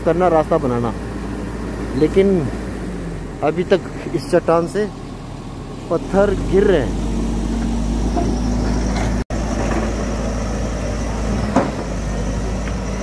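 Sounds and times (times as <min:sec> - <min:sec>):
heavy engine running: 0:00.0 - 0:13.0.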